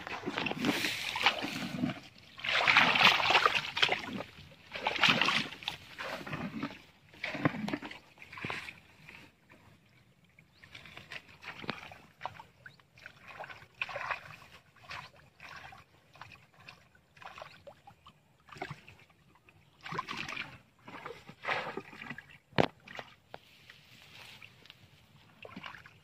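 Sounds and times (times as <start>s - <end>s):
splashing in muddy water: 0.0s - 9.4s, 10.4s - 26.0s.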